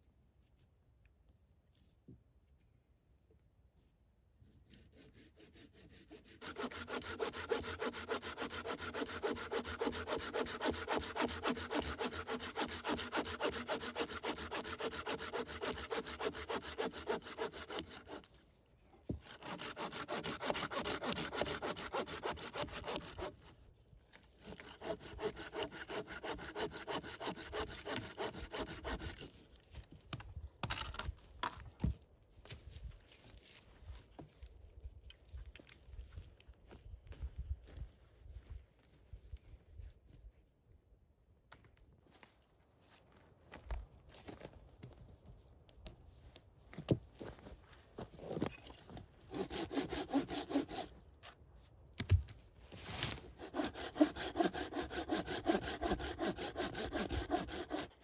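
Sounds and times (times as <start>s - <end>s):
hand saw cutting wood: 4.6s - 18.4s, 19.1s - 23.6s, 24.4s - 29.4s, 49.2s - 51.0s, 52.7s - 58.0s.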